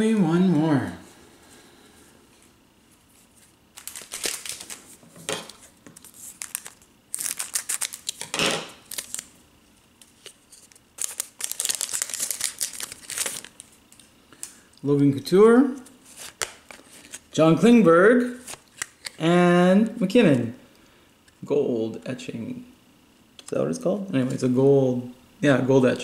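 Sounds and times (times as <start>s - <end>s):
foil wrapper tearing and crinkling: 3.7s - 5.0s, 5.9s - 9.3s, 10.1s - 13.7s.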